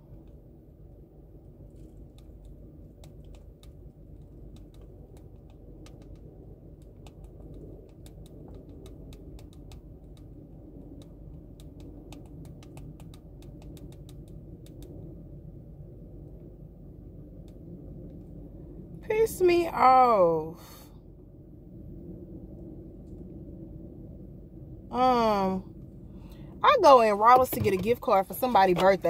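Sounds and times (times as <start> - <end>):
car cabin rumble: 26.6 - 29.0.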